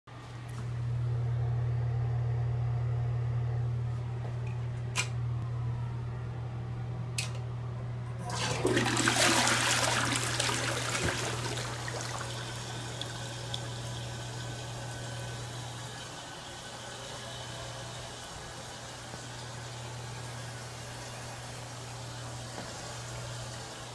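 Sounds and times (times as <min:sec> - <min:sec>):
low hum: 0:00.7 - 0:08.7
toilet flushing: 0:08.2 - 0:21.9.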